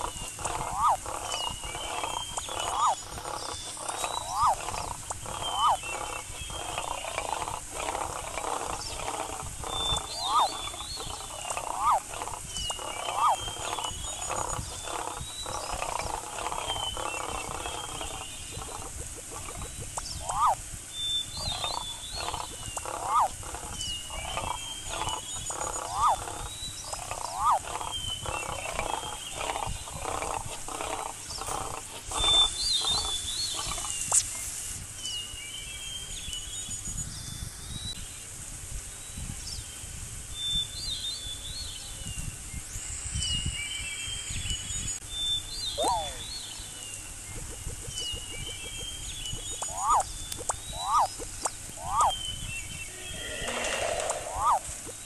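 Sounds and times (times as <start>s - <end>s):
lion grunting calls: 0.0s - 20.6s, 21.4s - 33.9s, 45.8s - 46.3s, 52.9s - 55.0s
birds chirping: 0.0s - 38.2s, 39.2s - 55.0s
loud rush of noise: 52.8s - 55.0s
lion rising and falling cries: 52.9s - 55.0s.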